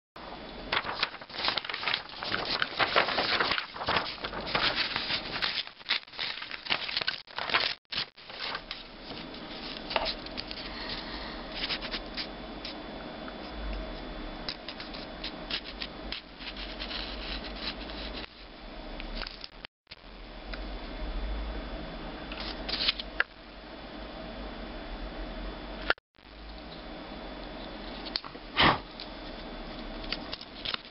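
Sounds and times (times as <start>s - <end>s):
paper scraping phone screen: 15.7s - 18.3s.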